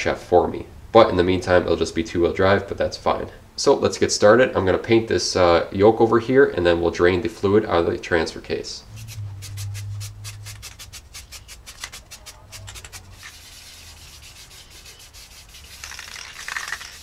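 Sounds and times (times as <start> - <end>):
spray can rattling: 8.9 - 17.0
spray paint hissing: 8.9 - 17.0.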